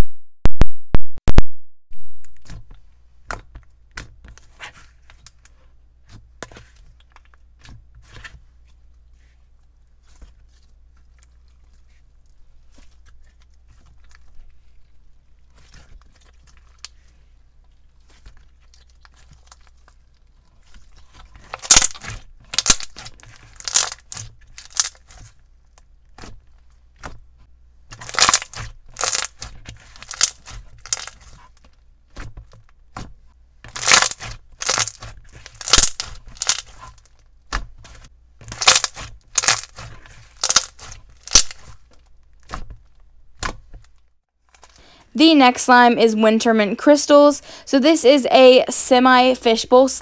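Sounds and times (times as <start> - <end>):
slime crackling and popping: 18.0 - 27.2, 27.9 - 32.2, 33.7 - 37.7, 38.4 - 42.7.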